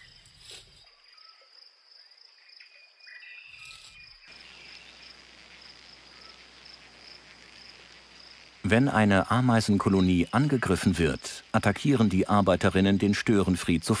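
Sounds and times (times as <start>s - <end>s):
bird chirps: 0.0s - 5.2s
high-pitched insect trill: 0.0s - 13.2s.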